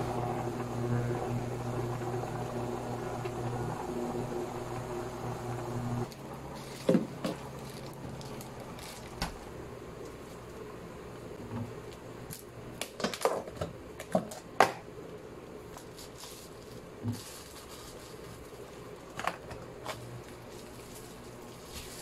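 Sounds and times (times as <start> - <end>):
low steady hum: 0.0 - 12.9
plastic bag crinkling: 6.1 - 9.5, 15.7 - 22.0.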